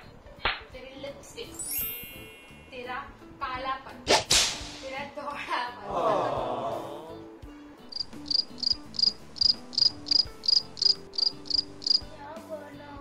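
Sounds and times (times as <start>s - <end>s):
cricket chirping: 7.9s - 12.1s.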